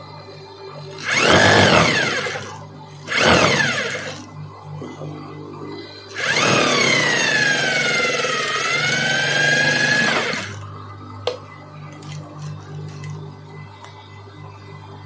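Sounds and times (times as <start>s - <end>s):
sewing machine stitching: 1.0s - 4.2s, 6.1s - 10.6s.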